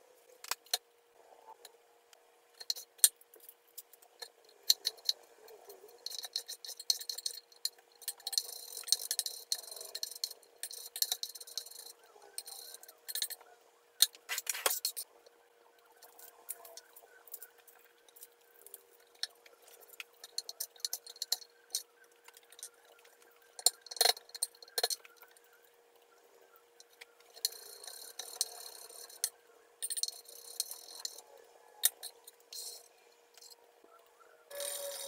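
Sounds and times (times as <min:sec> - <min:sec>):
faint steady hum: 0:00.0 - 0:35.0
dry rustling and scraping: 0:14.2 - 0:15.0, 0:34.5 - 0:35.0.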